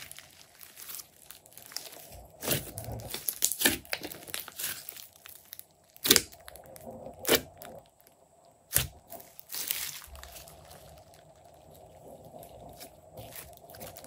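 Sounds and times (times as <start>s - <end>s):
hands squishing slime: 0.0s - 7.9s, 8.7s - 14.0s
sharp slime pops: 3.4s - 4.0s, 6.0s - 6.4s.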